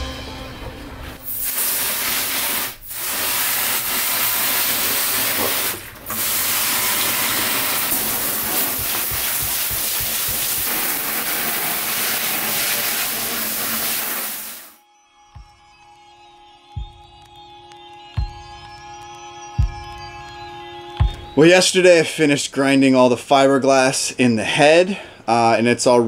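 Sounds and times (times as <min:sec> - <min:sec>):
hose nozzle spraying water: 0:01.2 - 0:14.8.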